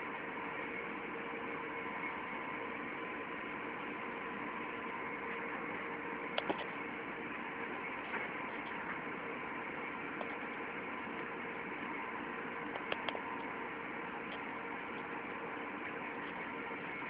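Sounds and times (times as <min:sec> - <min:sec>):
industrial machinery hum: 0:00.0 - 0:17.0
sharp clicks: 0:06.4 - 0:06.7, 0:12.7 - 0:13.5.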